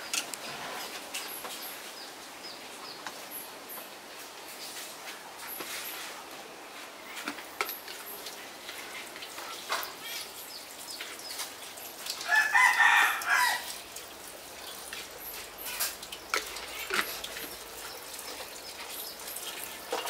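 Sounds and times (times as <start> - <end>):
rooster crowing: 12.2 - 13.8.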